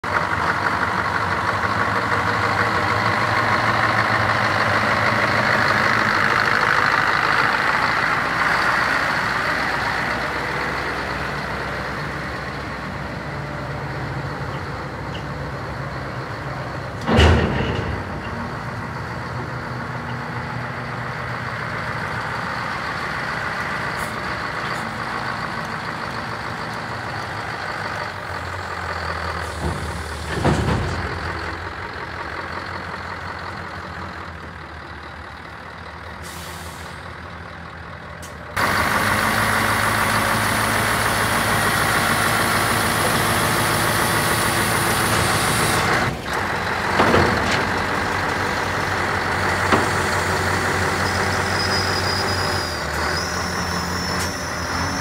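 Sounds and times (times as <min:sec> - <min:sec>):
truck diesel engine running: 0:00.0 - 0:55.0.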